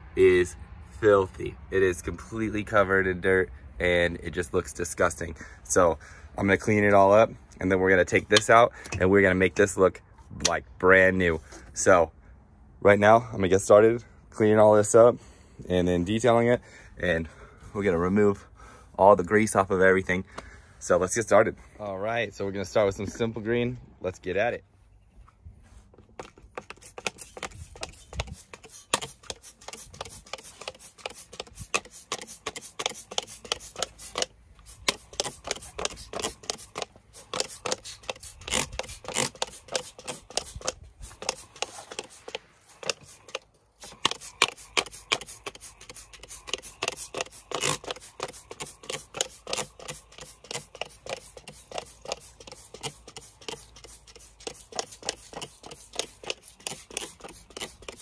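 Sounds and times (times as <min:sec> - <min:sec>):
spray bottle hissing: 0:26.4 - 0:58.0.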